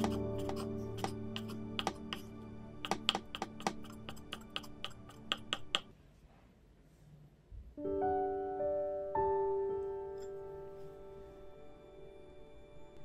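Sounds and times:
knife chopping on wooden board: 0.0 - 5.9
soft background music: 0.0 - 5.9, 7.8 - 13.0
piano chords: 7.8 - 13.0.

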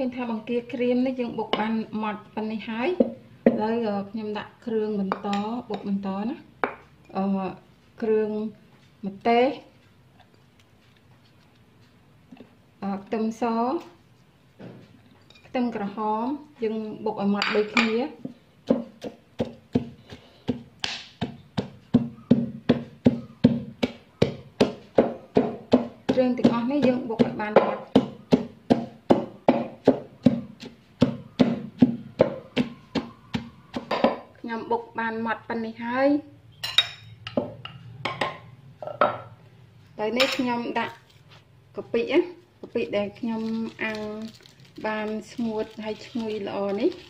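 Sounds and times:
pestle pounding in mortar: 3.0 - 3.6, 17.4 - 34.4.

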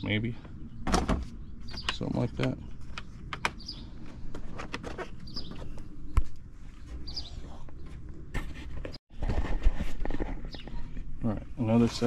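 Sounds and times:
bird chirping: 0.0 - 4.0, 5.1 - 8.0, 10.4 - 11.0.

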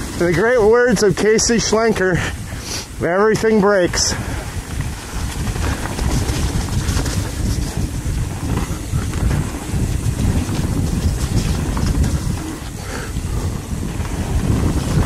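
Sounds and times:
wind buffeting microphone: 0.0 - 15.0
bike clicks and rattles: 3.3 - 15.0
tyres rolling over dirt: 3.3 - 15.0.

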